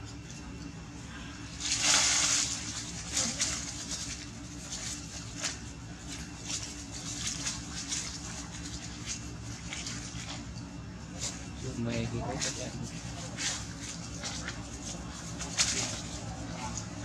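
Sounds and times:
steady low hum: 0.0s - 17.0s
dry leaves crunching: 1.6s - 10.4s.

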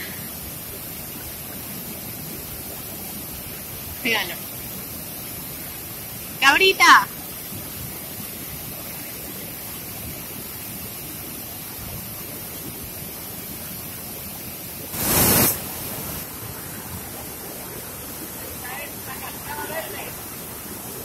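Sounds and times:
waterfall roaring: 14.9s - 21.0s
loud burst of noise: 15.0s - 16.2s.

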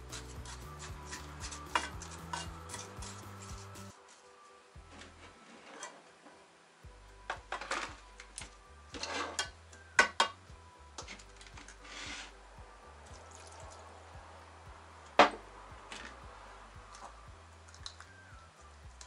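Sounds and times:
wooden spatula scraping saucepan: 0.0s - 3.8s, 8.9s - 9.6s, 11.8s - 12.4s
faint background music: 0.0s - 19.0s.

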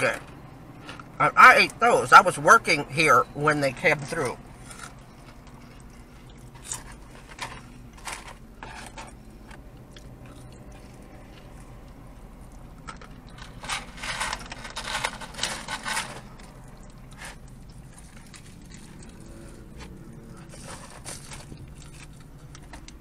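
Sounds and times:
crunching and chewing food: 0.0s - 2.2s, 3.7s - 23.0s
low steady hum: 0.0s - 23.0s.

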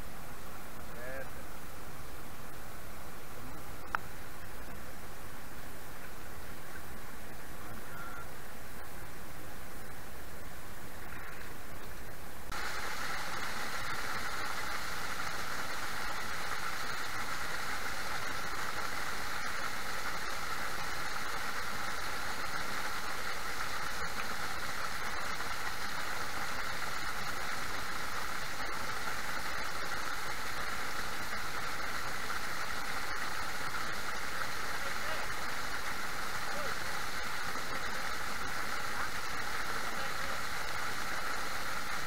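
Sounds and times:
waterfall splashing on rocks: 12.5s - 42.0s.

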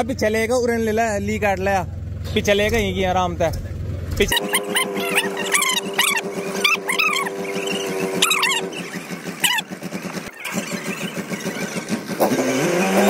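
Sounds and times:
tractor engine at high revs: 3.5s - 13.0s
short high-pitched squeals: 4.3s - 13.0s.

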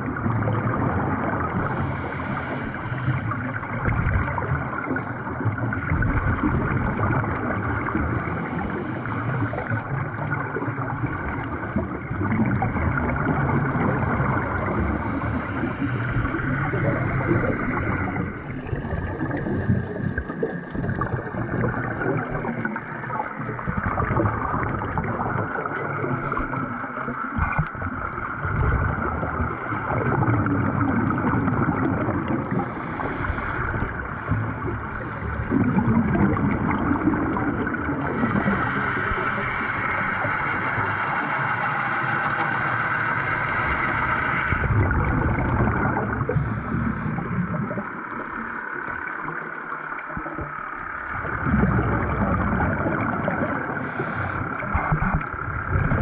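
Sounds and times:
gurgle of exhaled bubbles: 0.0s - 56.0s
muffled water noise: 0.0s - 56.0s
hissing regulator inhalations: 1.5s - 3.4s, 8.2s - 10.0s, 13.8s - 18.6s, 32.5s - 35.4s, 38.6s - 44.7s, 46.3s - 47.2s, 53.8s - 55.3s.

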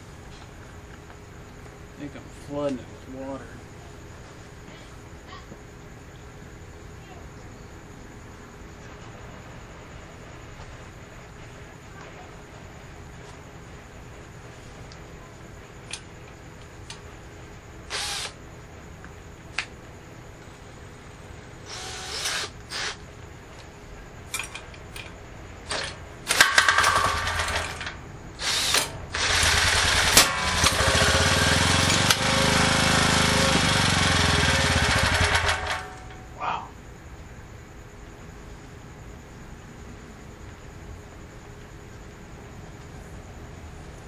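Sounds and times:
generator engine running: 25.7s - 36.2s.

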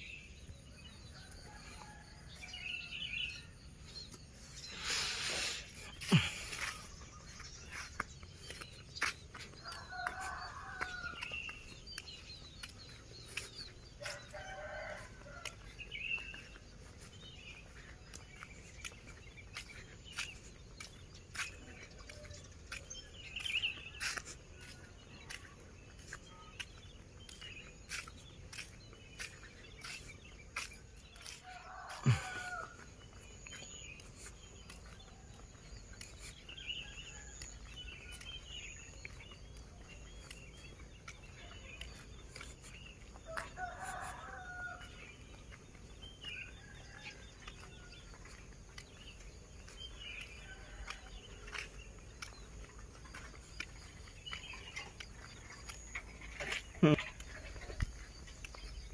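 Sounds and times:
small birds chirping: 1.2s - 58.9s
roosters crowing: 9.6s - 11.7s, 30.6s - 33.1s, 43.0s - 44.9s.

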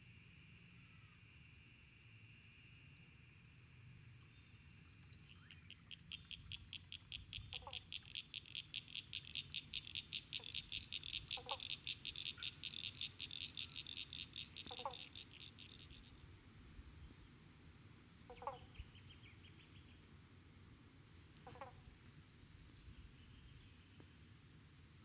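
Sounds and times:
frog high pulsed calls: 5.3s - 16.1s
short lower frog calls: 5.3s - 16.1s, 18.3s - 18.8s, 21.4s - 21.8s.

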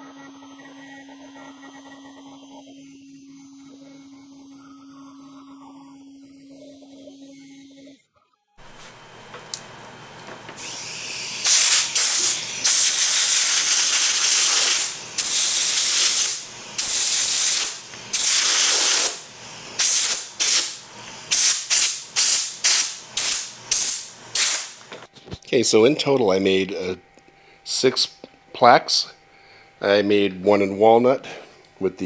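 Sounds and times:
pressurized nozzle hissing: 10.6s - 24.8s.

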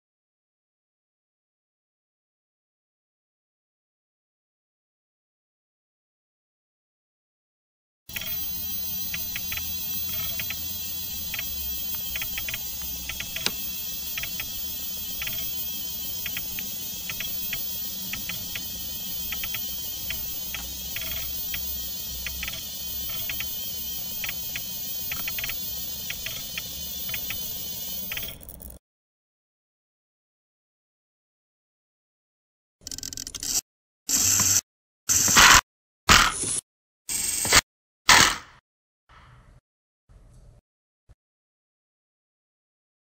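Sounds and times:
sharp click: 8.1s - 28.7s, 37.4s - 38.6s
light mechanical clicks: 8.1s - 28.8s
mechanism whirring: 8.1s - 28.8s.

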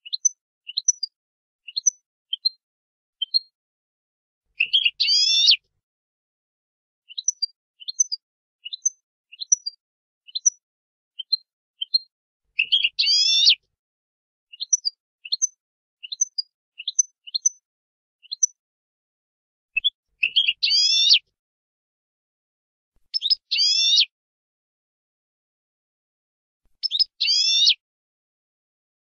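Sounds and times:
goldfinch chirping: 0.0s - 1.1s, 1.7s - 2.6s, 3.2s - 3.5s, 4.6s - 5.6s, 7.1s - 10.6s, 11.2s - 13.6s, 14.5s - 17.6s, 18.2s - 18.6s, 19.8s - 21.2s, 23.1s - 24.1s, 26.8s - 27.8s.

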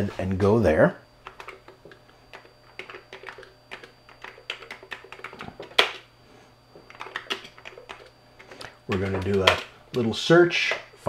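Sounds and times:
keyboard typing clicks: 1.2s - 6.0s, 6.9s - 10.1s.

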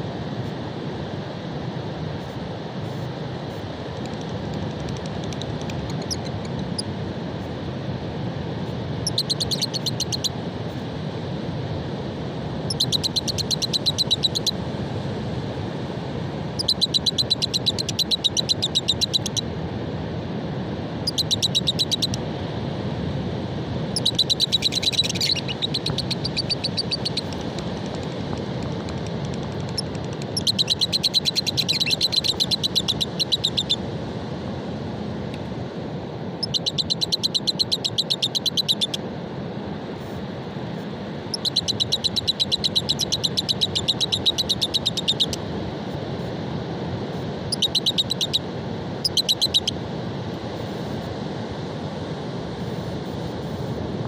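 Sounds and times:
lovebirds chattering trills: 24.0s - 27.5s, 29.3s - 33.8s, 41.3s - 45.4s.

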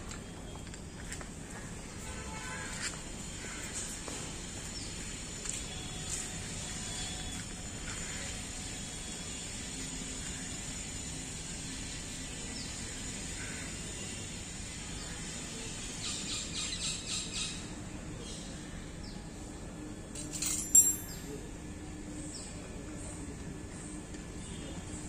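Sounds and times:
ringing metallic clink: 20.2s - 21.3s.

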